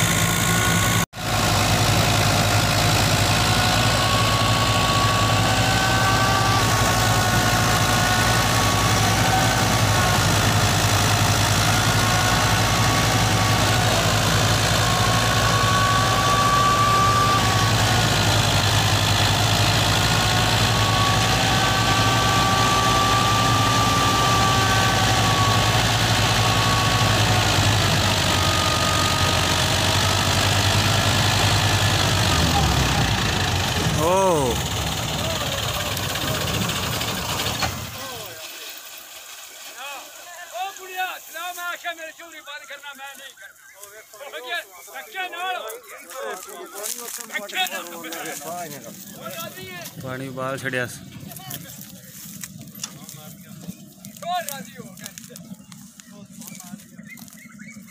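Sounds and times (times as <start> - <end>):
high-pitched machinery whine: 0.0 - 38.8
tractor diesel engine drone: 0.0 - 41.0, 47.6 - 57.9.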